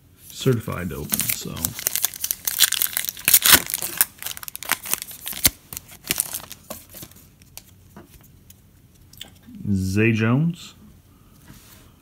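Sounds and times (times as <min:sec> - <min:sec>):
foil wrapper crinkling and tearing: 0:00.9 - 0:07.7.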